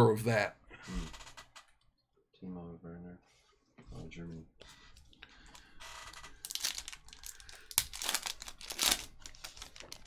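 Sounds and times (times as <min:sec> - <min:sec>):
foil wrapper tearing and crinkling: 0:06.4 - 0:10.0.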